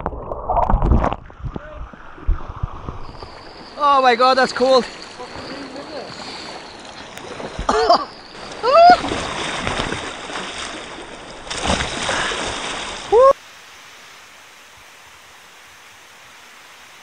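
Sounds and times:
paddle strokes: 0.9 - 13.2
whitewater rushing and splashing: 3.1 - 13.9
person shouting: 8.6 - 9.0, 13.1 - 13.4
faint hiss of river rapids: 13.1 - 17.0.

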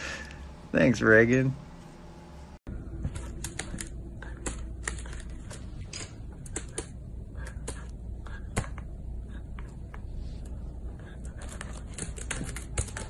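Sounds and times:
paws tapping keyboard keys: 3.0 - 13.0.

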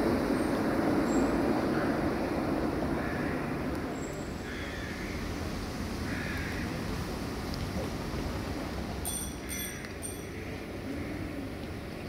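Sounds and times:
distant tram on track: 0.0 - 12.0
street traffic rumble: 0.0 - 12.0.

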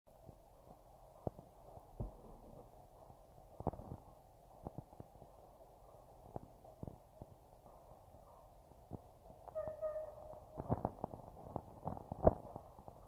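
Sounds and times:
distant steam locomotive: 7.4 - 10.7.

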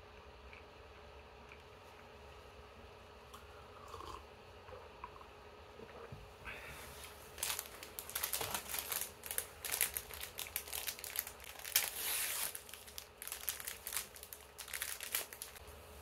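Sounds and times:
plastic film crinkling and tearing: 7.3 - 15.6.

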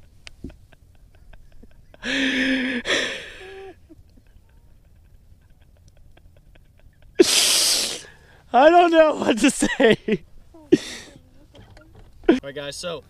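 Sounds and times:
person's breathy vocal outburst: 7.2 - 8.2.

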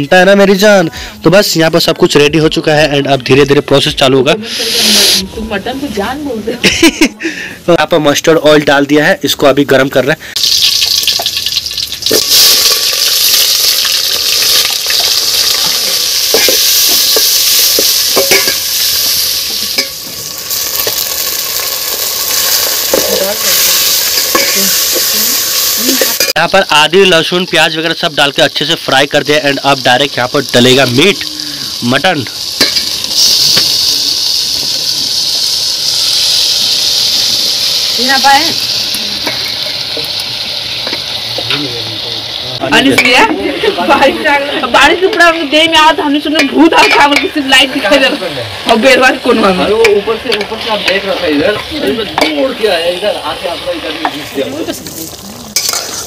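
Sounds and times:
onions sizzling in oil: 0.0 - 56.0
spoon stirring and knocking pot: 18.1 - 18.6.

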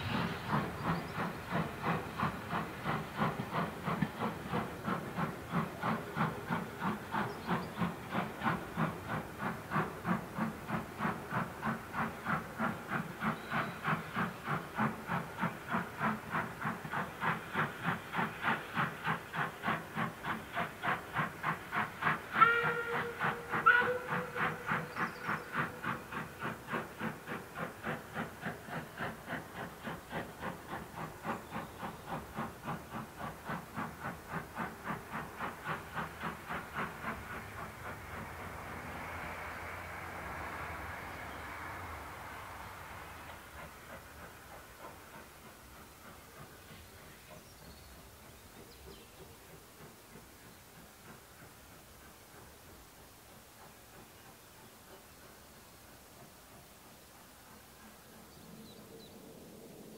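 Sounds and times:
steam locomotive exhaust beats: 0.0 - 59.9
steam whistle short blasts: 22.4 - 24.7.

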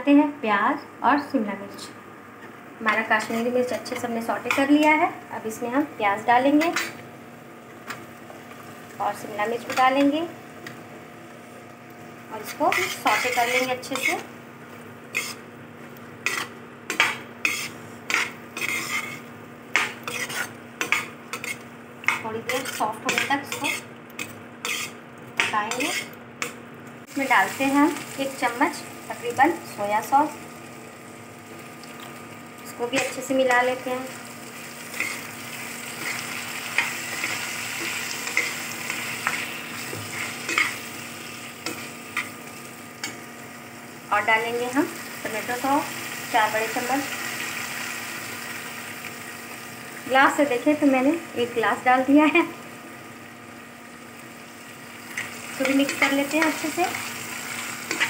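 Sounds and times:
low sizzle: 0.0 - 58.0
spatula scraping pan: 12.4 - 14.3, 15.1 - 15.5, 16.2 - 26.6, 34.9 - 40.8.

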